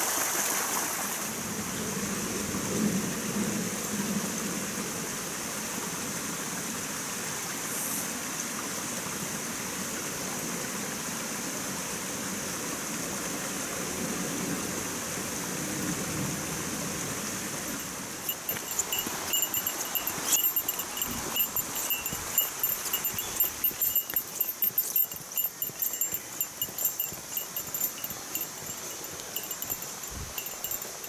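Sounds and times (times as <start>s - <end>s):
stream flowing over rocks: 0.0s - 1.4s, 14.8s - 31.0s.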